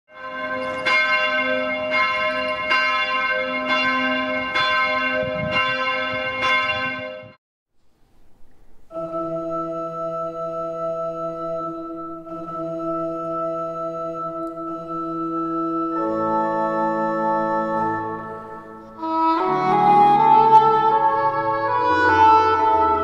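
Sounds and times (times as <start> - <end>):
church bells ringing: 0.1 - 7.4, 8.9 - 23.0
organ and clarinet chord: 8.9 - 23.0.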